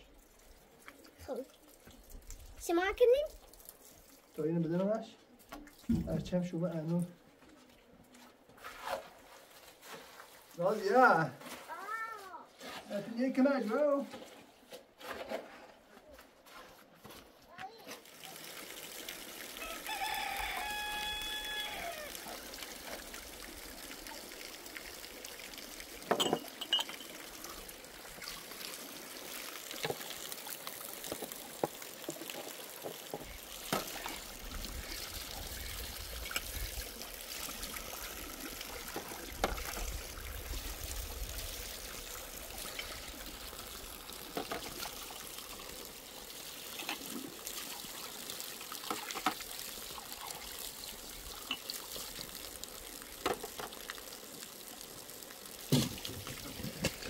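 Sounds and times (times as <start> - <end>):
water trickling: 0.0 - 7.2, 18.0 - 57.0
light knocks and clinks: 26.1 - 27.1.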